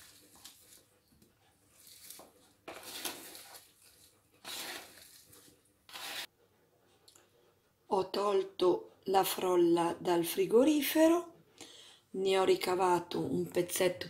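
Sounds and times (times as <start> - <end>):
apple slices rubbing in bowl: 1.8 - 6.3.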